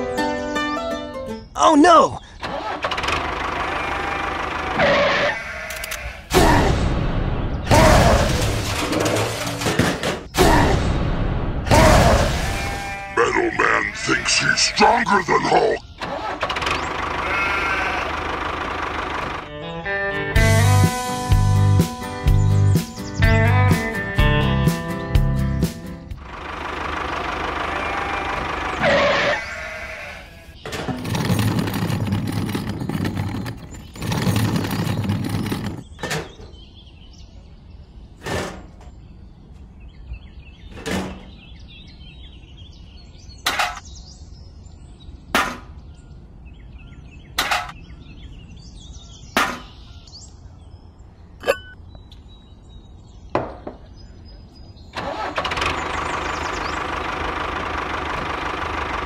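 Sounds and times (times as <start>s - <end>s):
tractor engine: 2.3s - 10.4s, 11.2s - 21.8s, 25.6s - 36.4s, 54.9s - 59.0s.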